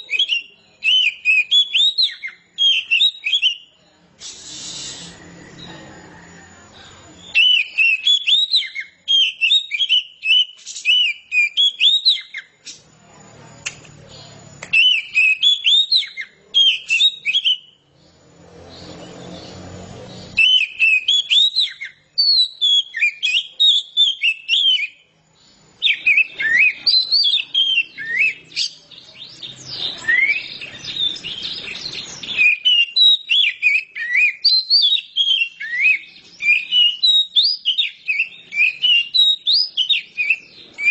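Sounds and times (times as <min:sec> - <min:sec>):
bird singing whistled phrases: 0:00.0 - 0:05.9, 0:07.2 - 0:12.8, 0:14.6 - 0:17.8, 0:20.2 - 0:25.1, 0:25.7 - 0:40.9.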